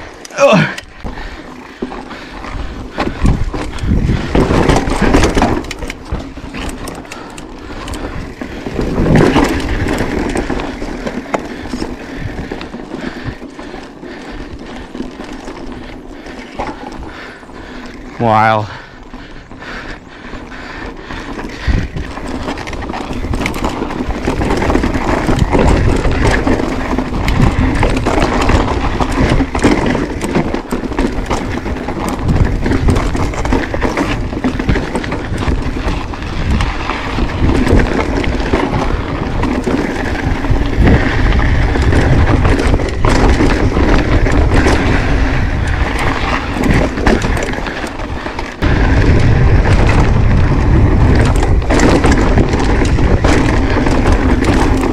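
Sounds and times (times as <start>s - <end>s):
bike rattling and knocking: 0.0s - 54.9s
bike tyres crunching: 0.0s - 54.9s
wind buffeting microphone: 2.1s - 54.9s.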